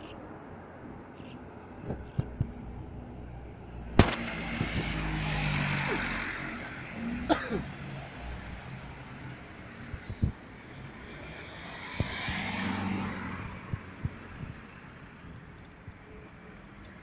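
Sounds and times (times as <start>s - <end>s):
city traffic noise: 0.0s - 17.0s
car passing by: 4.0s - 8.3s, 11.2s - 13.8s.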